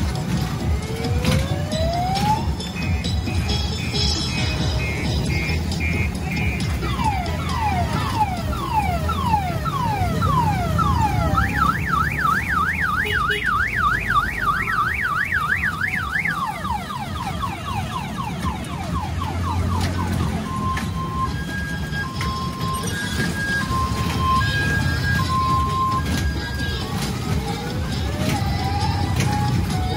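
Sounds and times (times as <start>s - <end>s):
car alarm siren: 0.5s - 29.9s.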